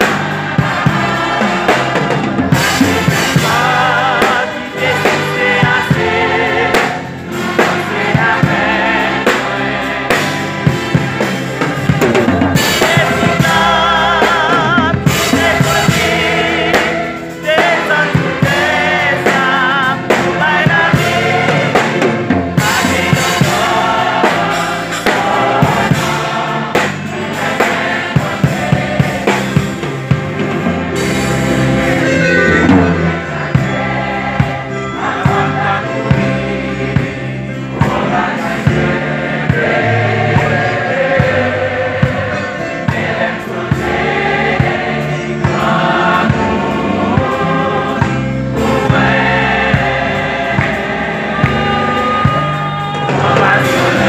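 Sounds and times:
choir singing gospel: 0.0 - 54.0
drum kit and bass: 0.0 - 54.0.

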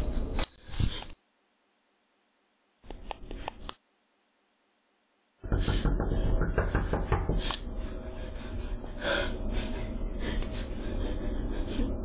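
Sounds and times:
fist pounding on door: 5.4 - 7.4
woman breathing hard: 5.4 - 12.0.

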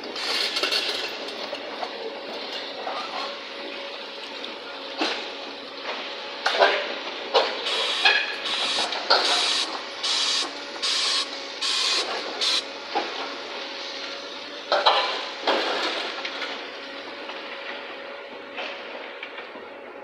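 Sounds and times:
excavator engine humming: 1.1 - 20.0
short hydraulic hissing pulses: 7.6 - 12.7.

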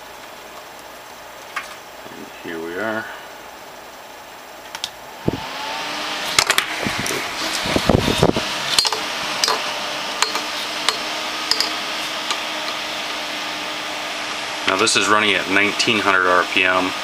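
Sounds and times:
case fan whooshing: 6.6 - 9.8.

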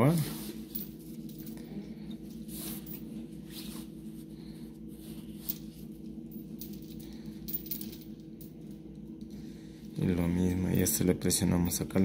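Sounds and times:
steady low hum: 0.0 - 12.0
chain links clinking: 5.4 - 9.3.

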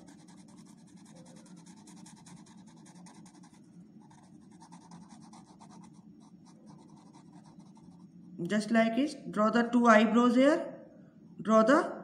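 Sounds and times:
pen scratching on wooden stick: 0.0 - 5.9.

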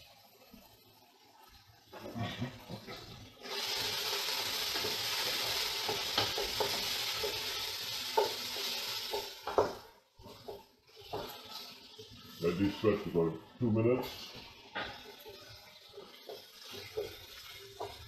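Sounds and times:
vegetables sizzling in oil: 0.0 - 18.0
wooden spoon knocking pot: 9.1 - 11.3.

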